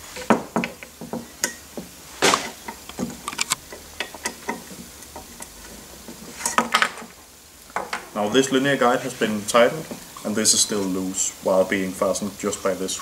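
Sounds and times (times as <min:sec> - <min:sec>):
tools clicking and knocking on metal: 0:00.2 - 0:07.1, 0:07.7 - 0:08.1.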